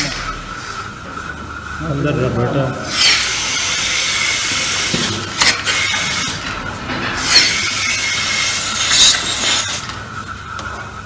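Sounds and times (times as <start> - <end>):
milking machine cups hissing: 2.8 - 6.5.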